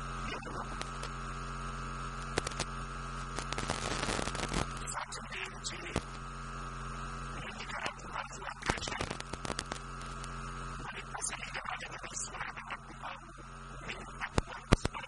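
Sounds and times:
electrical mains hum: 0.0s - 15.0s
high steady whine: 0.0s - 15.0s
small clicks and crackles: 0.7s - 1.2s, 2.2s - 5.0s, 5.8s - 6.3s, 7.7s - 10.4s, 13.9s - 15.0s.

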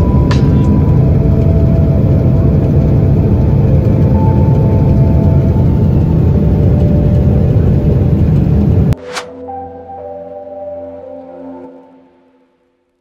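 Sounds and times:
low rumble in airliner cabin: 0.0s - 9.0s
air rushing: 8.9s - 9.4s.

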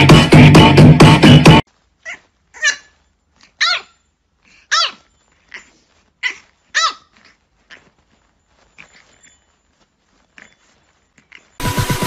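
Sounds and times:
puppy barking: 2.0s - 4.0s, 4.6s - 9.3s.

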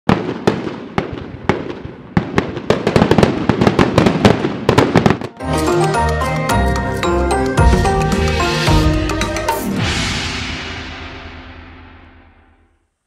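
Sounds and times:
sharp bangs and crackling: 0.1s - 5.4s
melodic music: 5.3s - 11.1s.

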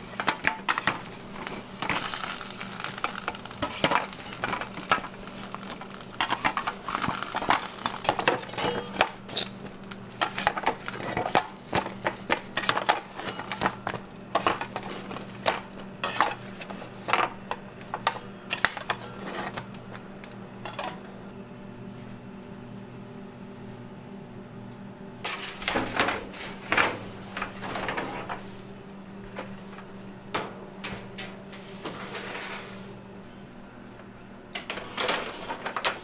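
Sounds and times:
steel pans and rack clattering: 0.2s - 19.7s, 20.6s - 21.0s, 34.6s - 36.0s
metal spatula scraping steel pans: 6.2s - 9.5s.

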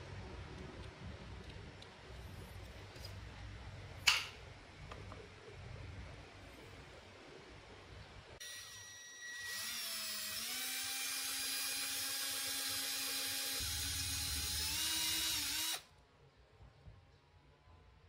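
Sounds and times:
cordless drill whine: 8.4s - 15.8s.

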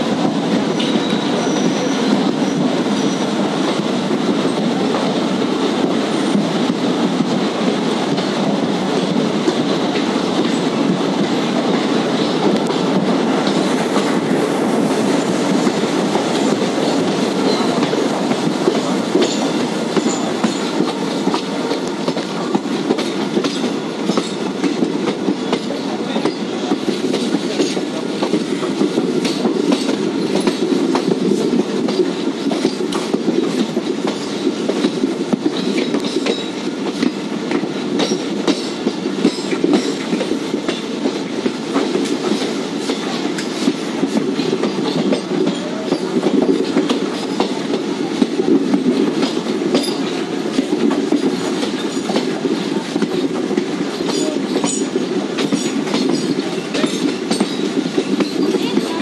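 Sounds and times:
train wheels rumbling on rail: 0.0s - 59.0s
wheels clacking over rail joints: 0.1s - 59.0s.

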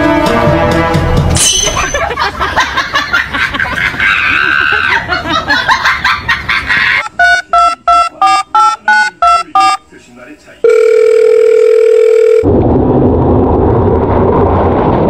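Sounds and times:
touch-tone keypad beeps: 7.0s - 9.8s.

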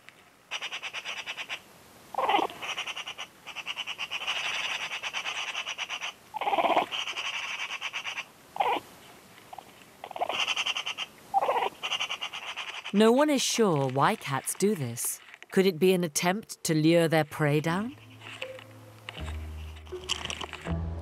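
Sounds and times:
cat chattering: 0.5s - 1.6s, 2.2s - 8.8s, 9.5s - 13.1s.

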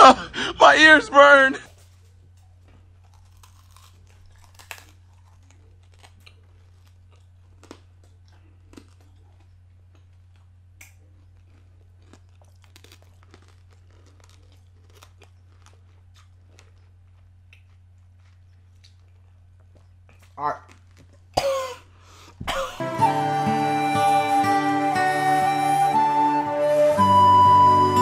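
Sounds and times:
hard candy crunching: 1.7s - 22.6s.

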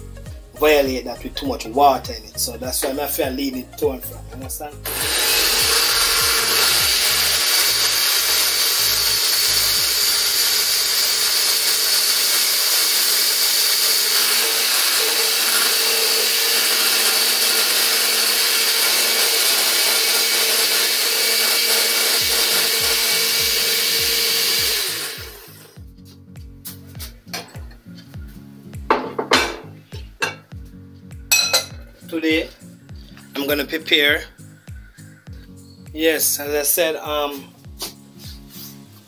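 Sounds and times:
electric blender running: 4.8s - 25.8s.

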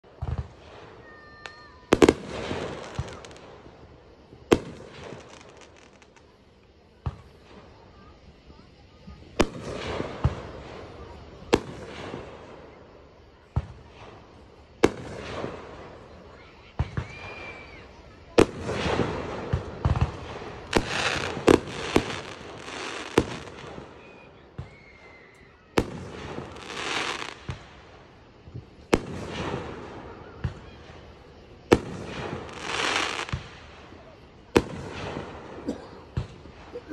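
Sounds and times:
fireworks crackling: 0.0s - 36.9s
firework bang: 18.4s - 24.0s
firework shells bursting: 18.4s - 28.2s, 31.7s - 35.6s.

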